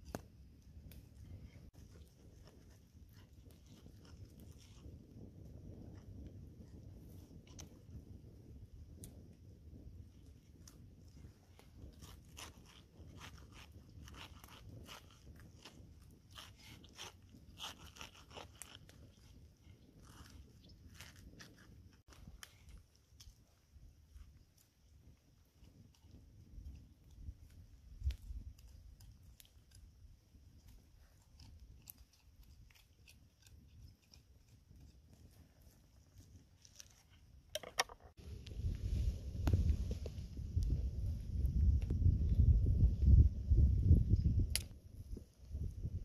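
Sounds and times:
knife crunching through pineapple: 0:11.5 - 0:23.4, 0:30.6 - 0:37.8.

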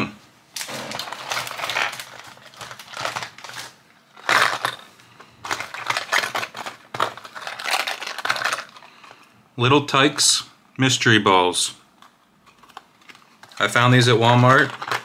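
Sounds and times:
packaging crinkling and rustling: 0:00.5 - 0:09.2, 0:12.0 - 0:15.0.

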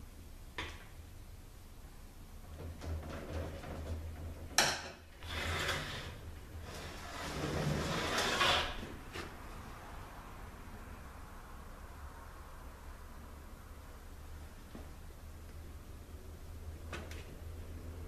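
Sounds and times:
tools scraping and rubbing: 0:05.2 - 0:09.4.

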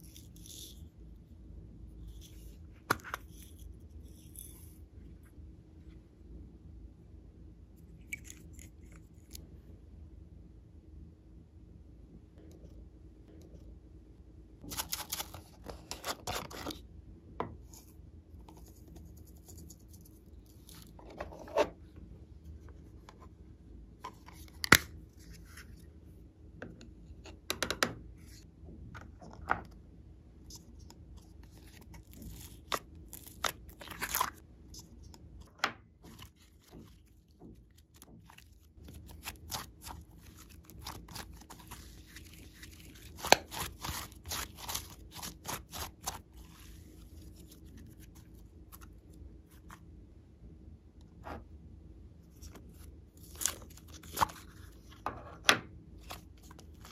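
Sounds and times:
slime being kneaded: 0:36.0 - 0:48.1.

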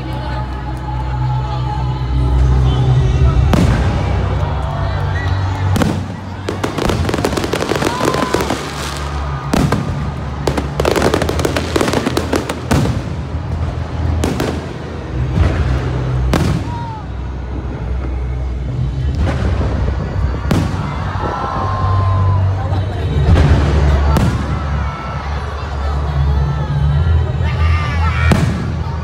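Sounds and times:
fireworks crackling: 0:03.3 - 0:21.4
fireworks bursting: 0:05.5 - 0:21.3.

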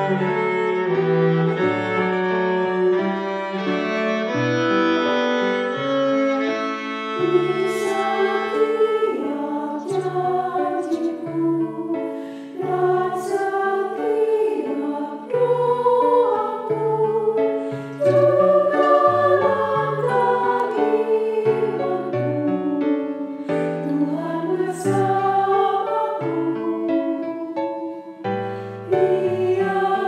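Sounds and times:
cello and violin: 0:00.0 - 0:30.0
women's choir singing a hymn: 0:07.2 - 0:30.0.

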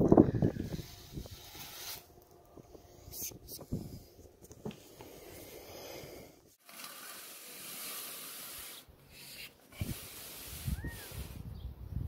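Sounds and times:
brush bristles scraping in flue: 0:00.6 - 0:02.4, 0:06.5 - 0:11.4.

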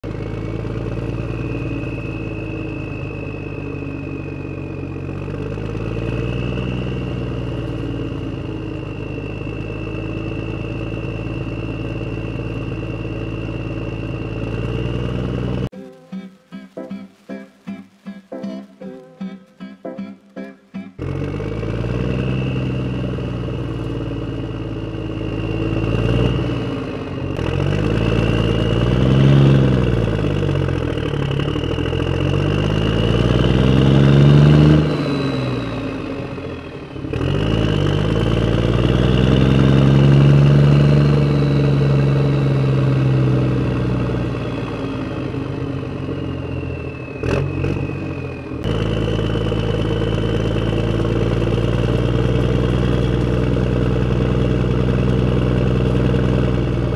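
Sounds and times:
toy tractor engine revving: 0:21.0 - 0:56.9.

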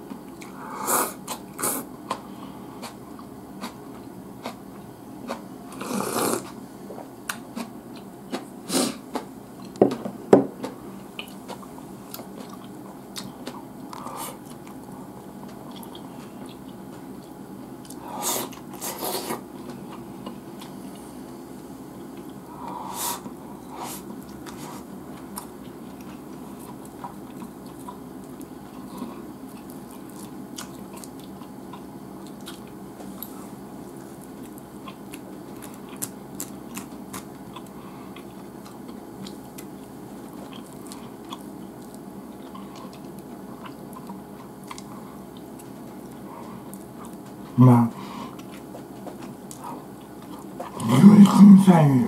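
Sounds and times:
low background hum: 0:00.0 - 0:52.0
chewing food: 0:01.2 - 0:10.0, 0:10.6 - 0:21.1, 0:22.0 - 0:23.4, 0:24.0 - 0:47.6, 0:48.3 - 0:51.0.

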